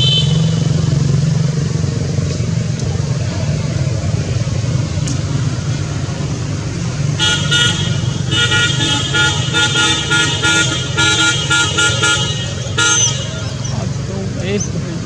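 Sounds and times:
vehicle horn short toots: 0.0s - 0.6s, 7.2s - 13.7s
low engine rumble: 0.0s - 15.0s.

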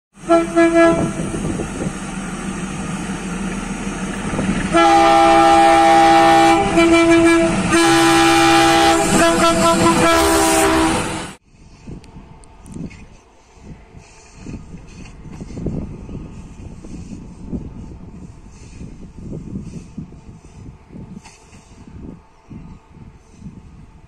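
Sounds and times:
diesel locomotive engine: 0.1s - 24.0s
locomotive horn blasts: 0.2s - 1.4s, 4.6s - 11.4s.

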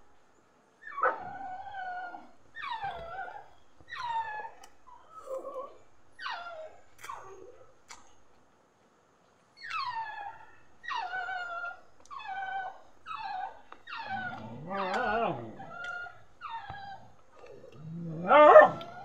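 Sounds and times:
dog whining: 0.8s - 7.6s, 9.6s - 19.0s.

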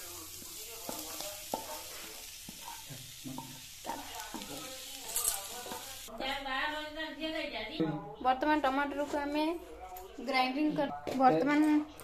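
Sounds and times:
cabbage sizzling in a pan: 0.0s - 6.1s.

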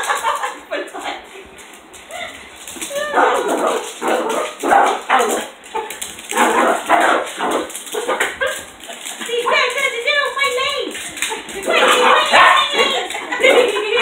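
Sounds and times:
dog barking: 3.2s - 8.6s.

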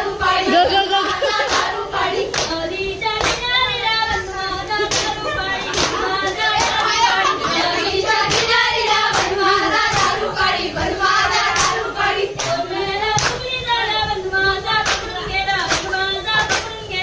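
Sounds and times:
women singing together: 0.0s - 17.0s
hand claps: 1.4s - 2.6s, 3.2s - 3.6s, 4.9s - 7.0s, 8.3s - 10.2s, 11.5s - 13.5s, 14.7s - 16.8s.

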